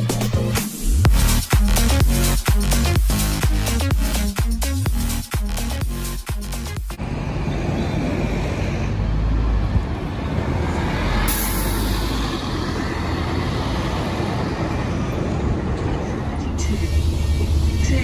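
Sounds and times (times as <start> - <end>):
music: 0.0 - 7.0, 16.6 - 18.0
passing traffic: 0.0 - 18.0
bus diesel engine: 5.8 - 18.0.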